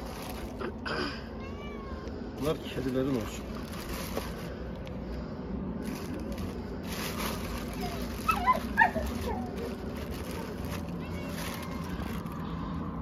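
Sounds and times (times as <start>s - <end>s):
dog whining: 7.7s - 10.6s.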